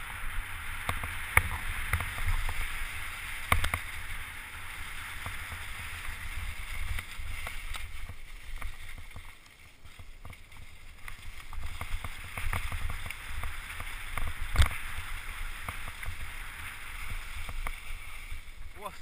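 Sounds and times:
wind rumble on microphone: 0.0 - 9.3
tyre hiss over leaves: 0.0 - 19.0
bike rattling and knocking: 0.4 - 18.0.

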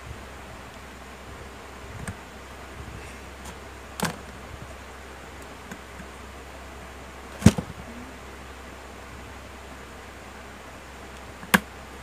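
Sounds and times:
background hiss: 0.0 - 12.0
sharp plastic clicks: 11.2 - 11.7.

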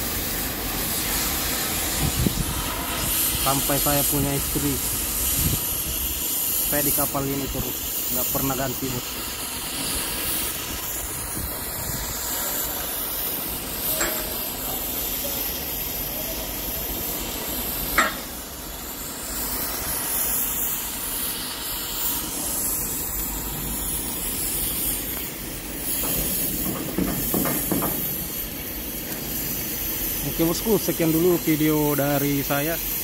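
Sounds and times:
steady hissing background noise: 0.0 - 33.0
sharp metal knocks: 18.0 - 18.3, 26.0 - 28.1.

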